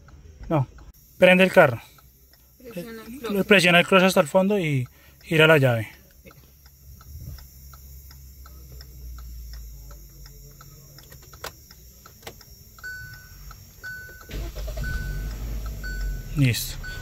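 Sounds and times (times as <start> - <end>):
car dashboard ticking: 0.0 - 17.0
warning chime beeping: 1.0 - 17.0
car engine starting: 6.4 - 17.0.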